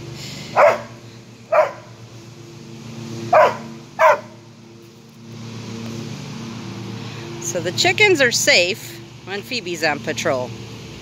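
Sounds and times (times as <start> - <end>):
dog barking sharply: 0.6 - 1.9, 3.3 - 4.4.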